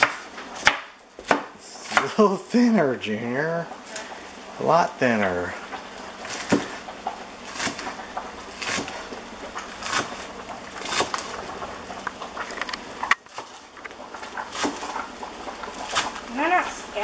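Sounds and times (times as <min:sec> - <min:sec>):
knife chopping on cutting board: 0:00.0 - 0:02.2, 0:06.3 - 0:06.8, 0:07.5 - 0:08.0, 0:08.6 - 0:09.0, 0:09.8 - 0:10.2, 0:10.8 - 0:11.4, 0:14.5 - 0:14.9.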